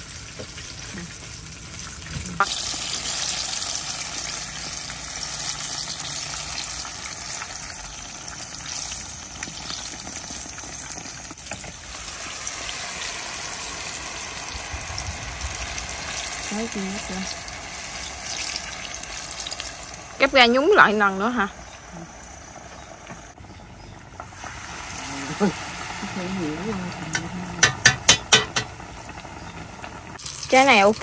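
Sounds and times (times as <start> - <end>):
food deep-frying in hot oil: 0.0 - 31.0
sharp knock: 27.6 - 28.7.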